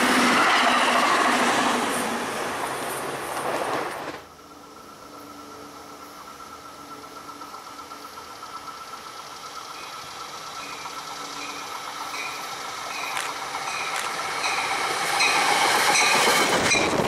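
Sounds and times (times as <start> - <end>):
train wheel and rail noise: 0.0 - 17.0
high ringing tone: 9.7 - 17.0.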